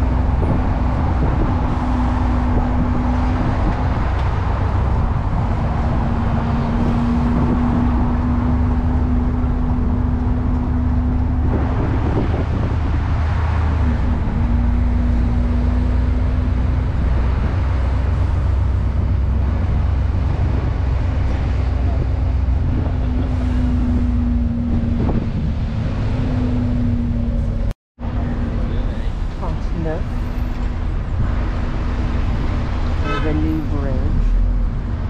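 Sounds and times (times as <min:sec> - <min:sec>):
bus engine rumble: 0:00.0 - 0:35.0.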